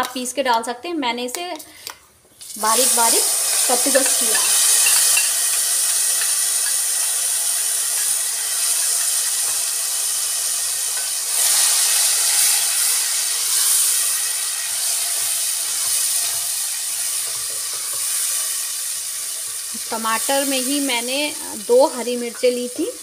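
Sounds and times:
tomato sizzling in hot oil: 2.4s - 23.0s
spatula stirring: 3.5s - 6.8s, 14.8s - 18.6s.

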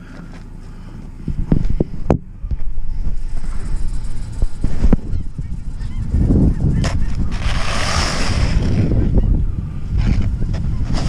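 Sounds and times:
steady low rumble: 0.0s - 11.0s
snow brush scraping snow: 7.3s - 8.8s.

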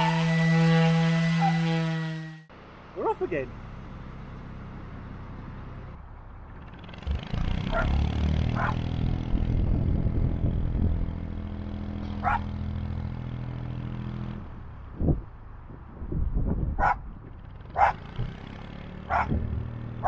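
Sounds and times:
diesel engine running: 0.0s - 20.0s
dog barking: 7.7s - 8.0s, 8.6s - 8.8s, 12.2s - 12.5s, 16.8s - 17.0s, 17.8s - 18.0s, 19.1s - 19.4s.

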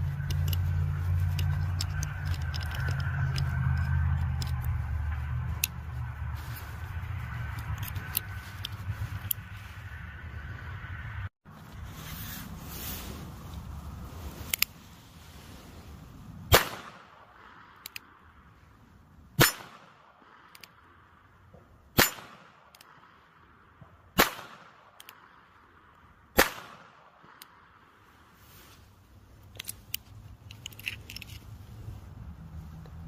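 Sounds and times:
hands and clothing rustling: 0.0s - 9.9s, 11.5s - 16.4s, 28.3s - 33.0s
revolver gunshots: 16.5s - 17.2s, 19.4s - 20.1s, 24.2s - 24.9s, 26.4s - 27.2s.

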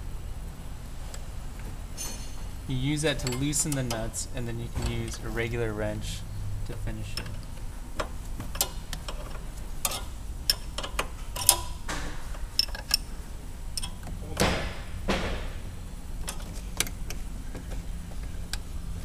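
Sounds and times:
wrench clicking on metal nuts: 3.1s - 4.1s, 7.1s - 11.8s, 13.8s - 14.1s.

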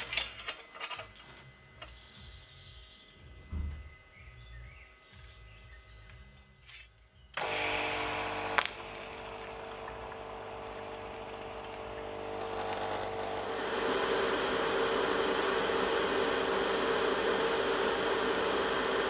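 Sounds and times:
welding arc hissing: 7.4s - 13.6s.

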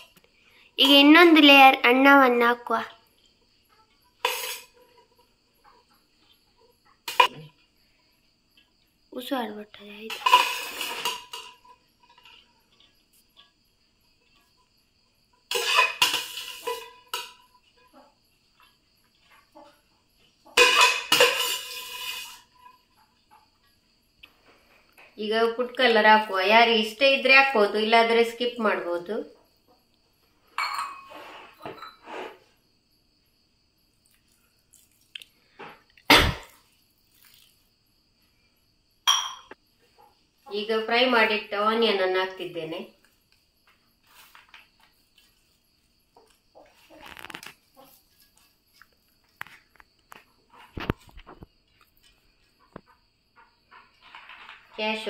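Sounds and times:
metal spoon scraping a pot: 4.1s - 5.1s, 10.1s - 12.8s, 15.5s - 17.6s, 20.6s - 22.9s, 30.6s - 32.5s.

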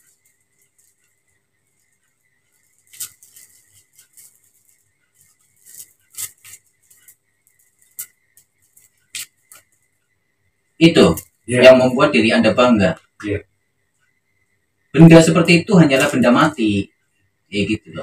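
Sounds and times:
clothing rustling: 0.0s - 10.0s
faint steady hum: 0.0s - 18.0s.

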